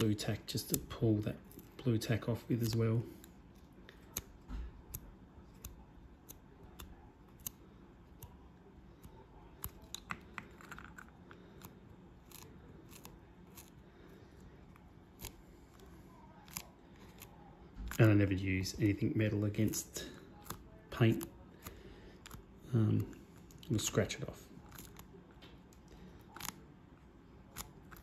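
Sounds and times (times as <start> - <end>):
fingers clicking on plastic model: 3.9 - 8.4.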